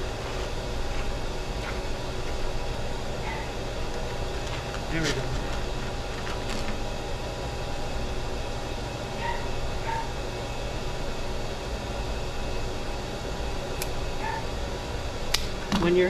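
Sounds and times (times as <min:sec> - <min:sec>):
steady room hum: 0:00.0 - 0:16.0.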